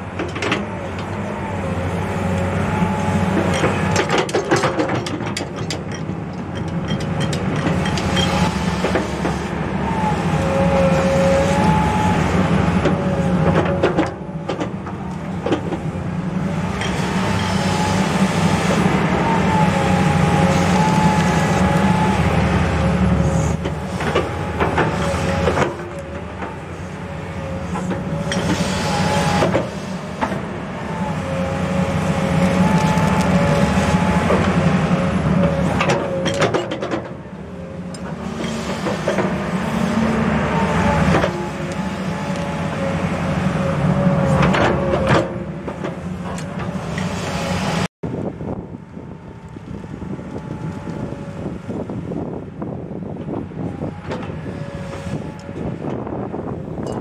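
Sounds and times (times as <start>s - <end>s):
excavator diesel engine droning: 0.0s - 57.0s
wavering hydraulic whine: 16.7s - 57.0s.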